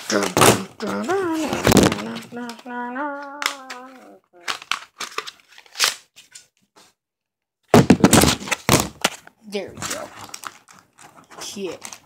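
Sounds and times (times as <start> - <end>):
person humming: 0.2 - 4.6
calculator crinkling and rustling: 4.4 - 6.6, 8.0 - 12.0.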